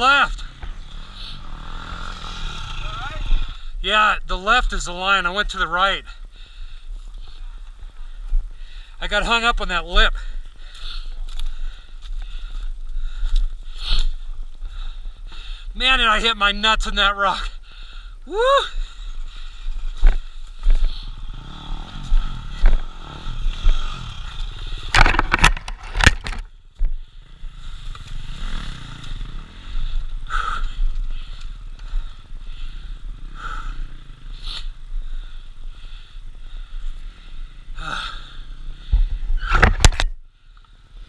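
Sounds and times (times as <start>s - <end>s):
dirt bike engine revving: 0.0s - 3.8s, 20.8s - 25.3s, 27.1s - 35.5s
bike clattering over rocks: 24.8s - 26.5s.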